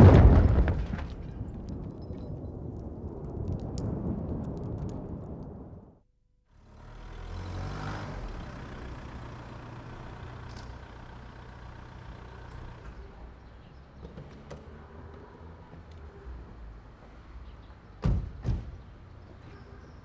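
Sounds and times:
car engine driving up: 0:06.5 - 0:17.7.

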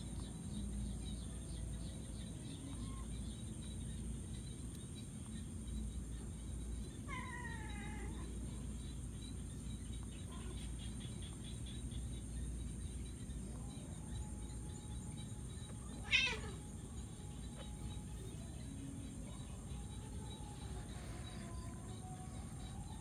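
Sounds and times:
cats meowing: 0:07.1 - 0:08.4, 0:15.9 - 0:16.8.

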